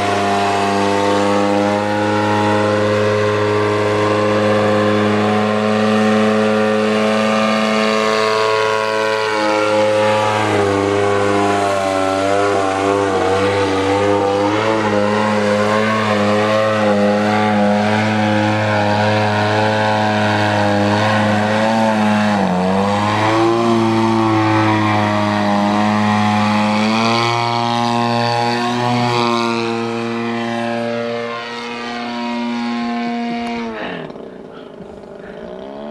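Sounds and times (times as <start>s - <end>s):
model airplane engine and propeller: 0.0s - 35.9s.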